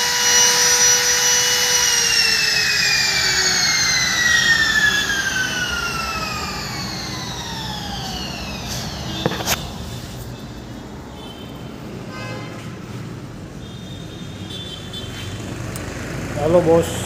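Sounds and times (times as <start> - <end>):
router motor spinning down: 0.0 - 9.7.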